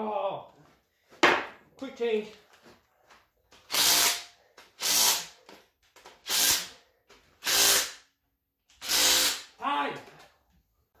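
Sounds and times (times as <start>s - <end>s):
impact wrench bursts: 3.7s - 5.4s, 6.2s - 6.7s, 7.4s - 8.0s, 8.7s - 9.6s.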